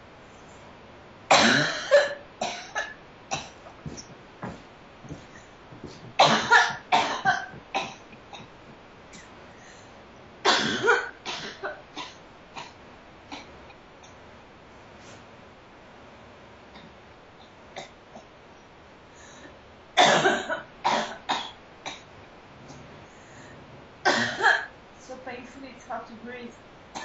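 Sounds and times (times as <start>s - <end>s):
woman coughing: 1.3s - 3.6s, 6.2s - 8.5s, 10.5s - 12.7s, 20.0s - 22.0s, 24.1s - 24.7s.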